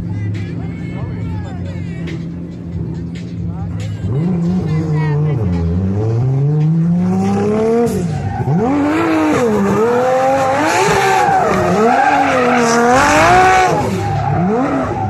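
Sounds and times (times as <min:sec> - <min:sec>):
car engine revving hard: 0:04.0 - 0:15.0
tyres squealing: 0:07.8 - 0:15.0.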